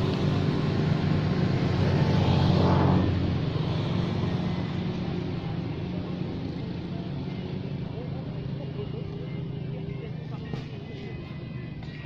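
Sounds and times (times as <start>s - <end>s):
motor engine humming: 0.0s - 12.0s.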